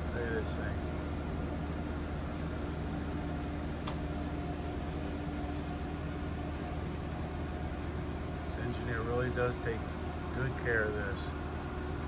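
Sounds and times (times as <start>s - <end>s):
machinery and ventilation hum: 0.0s - 12.0s
sharp click: 3.8s - 4.1s.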